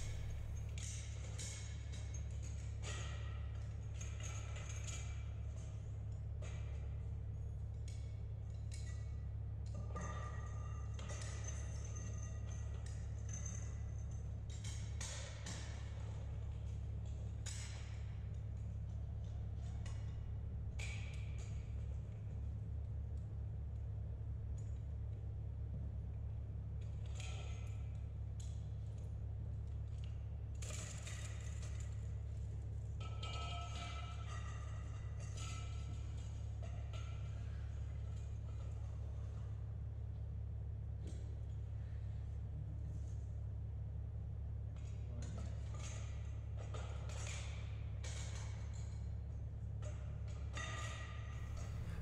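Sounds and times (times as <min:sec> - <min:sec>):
low hum: 0:00.0 - 0:00.9, 0:51.3 - 0:52.0.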